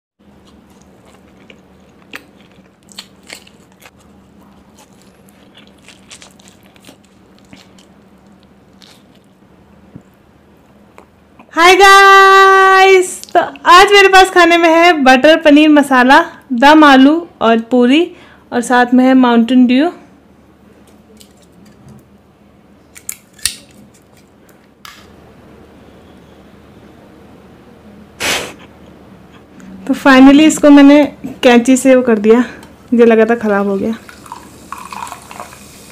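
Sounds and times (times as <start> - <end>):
crisp crunching of fried bread: 0.4 - 9.4.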